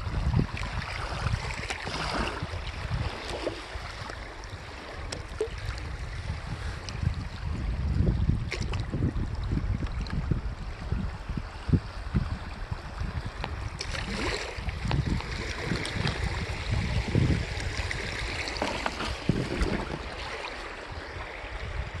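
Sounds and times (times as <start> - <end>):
water lapping at hull: 0.0 - 22.0
wind buffeting microphone: 0.0 - 22.0
paddle strokes splashing: 0.5 - 7.0, 13.4 - 21.2.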